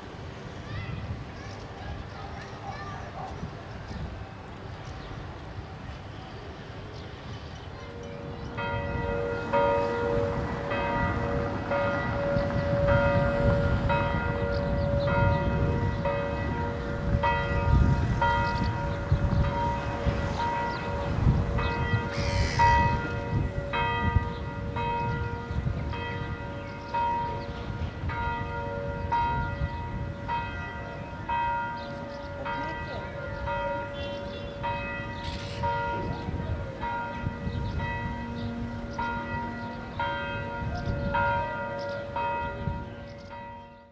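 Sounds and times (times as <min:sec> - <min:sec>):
church bells ringing: 0:00.0 - 0:43.9.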